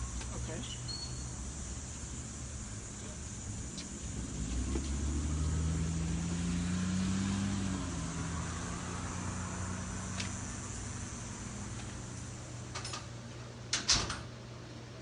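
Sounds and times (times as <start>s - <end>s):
motor vehicle engine running: 1.4s - 12.8s.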